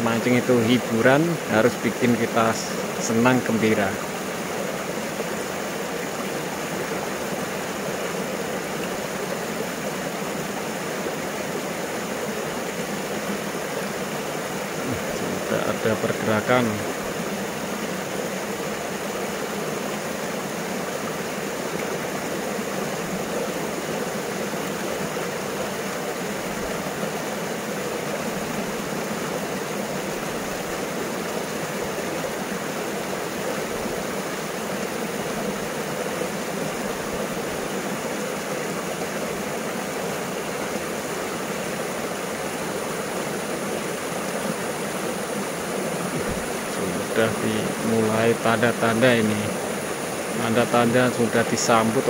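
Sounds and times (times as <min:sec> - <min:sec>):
river water rushing: 0:00.0 - 0:52.0.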